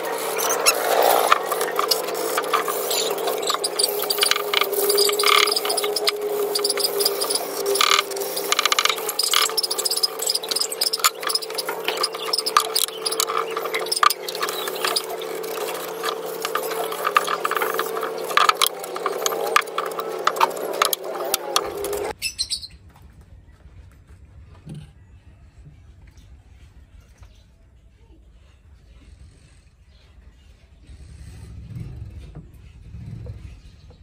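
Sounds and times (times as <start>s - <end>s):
sandpaper rasping on wood: 0.0s - 22.1s
steady hum: 0.0s - 22.2s.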